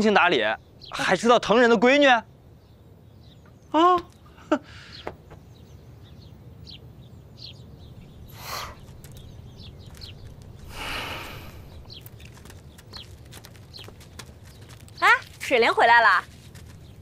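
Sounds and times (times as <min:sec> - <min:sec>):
low ambient hum: 0:00.0 - 0:17.0
small birds chirping: 0:00.0 - 0:17.0.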